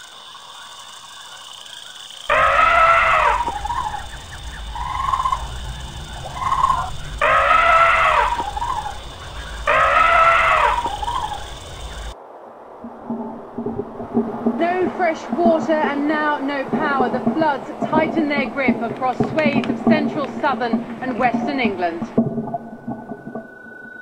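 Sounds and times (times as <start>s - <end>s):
elephant trumpeting: 2.3s - 4.0s, 6.3s - 11.5s
low rumble: 2.7s - 24.0s.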